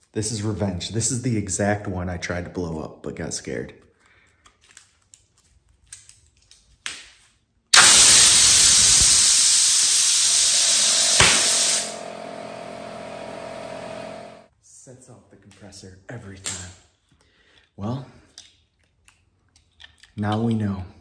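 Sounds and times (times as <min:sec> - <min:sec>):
compressed air hissing: 0:07.8 - 0:12.1
air compressor humming: 0:07.8 - 0:14.5
glove bursting with a pop: 0:10.2 - 0:11.9.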